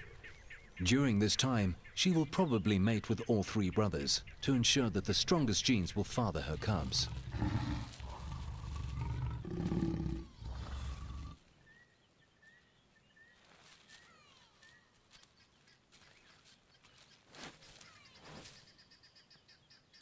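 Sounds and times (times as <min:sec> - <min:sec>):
lions growling: 0:06.5 - 0:11.4
faint bird chirps: 0:11.6 - 0:20.0.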